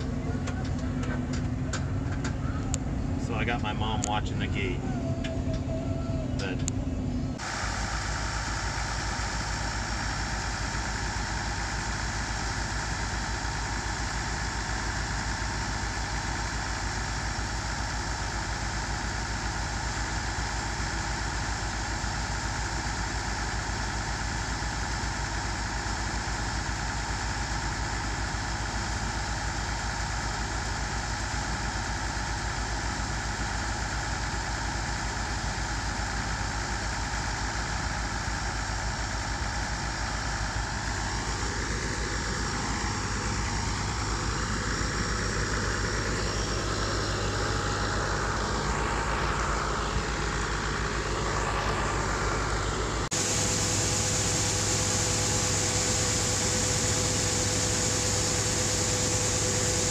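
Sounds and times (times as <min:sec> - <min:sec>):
tractor engine running: 0:00.0 - 0:59.9
auger unloading grain: 0:39.3 - 0:59.9.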